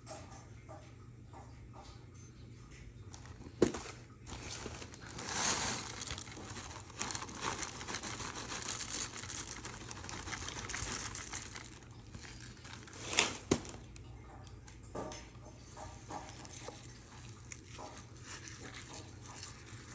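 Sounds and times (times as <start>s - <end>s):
muesli pouring from a cardboard box: 3.6s - 13.9s.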